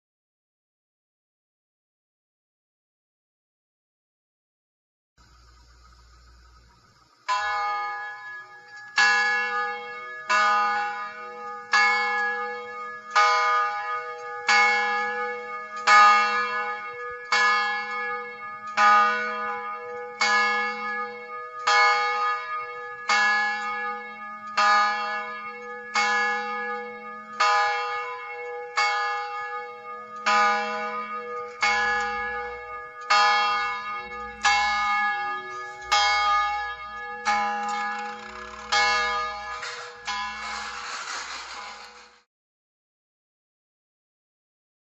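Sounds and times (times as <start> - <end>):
large bell ringing slowly: 7.2 - 41.0.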